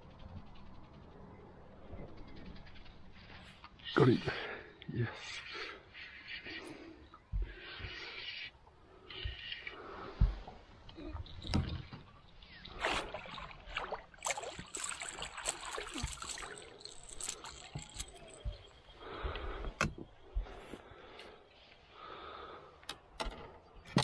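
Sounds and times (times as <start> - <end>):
water sloshing: 11.2 - 18.8
fish splashing at surface: 12.8 - 17.9.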